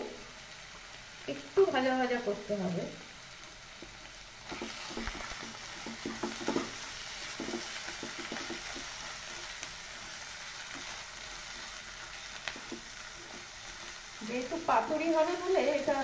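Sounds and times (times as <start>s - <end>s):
paste sizzling in oil: 0.1s - 16.0s
wooden spatula scraping pan: 4.4s - 14.2s.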